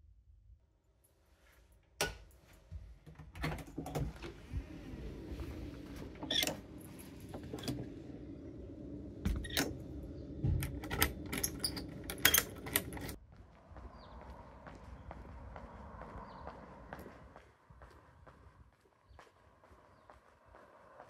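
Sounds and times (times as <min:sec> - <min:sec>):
outdoor background noise: 0:00.0 - 0:21.0
metal door latch clicks: 0:09.3 - 0:09.8
keys jangling: 0:10.8 - 0:13.2.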